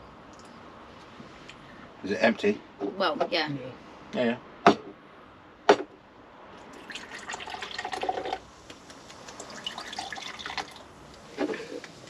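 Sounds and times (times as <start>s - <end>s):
fizzy drink pouring into cups: 6.7s - 8.4s, 9.2s - 10.8s.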